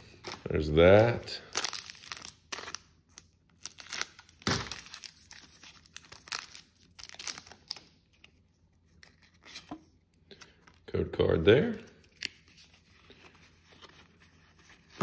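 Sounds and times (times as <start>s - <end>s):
foil wrapper tearing and crinkling: 1.4s - 7.9s.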